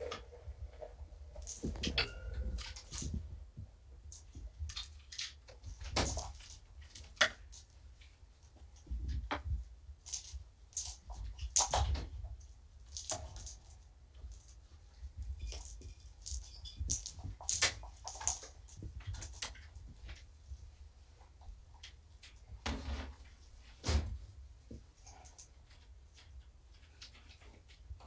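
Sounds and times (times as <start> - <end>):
cat toys clicking and jingling: 15.2 - 19.6.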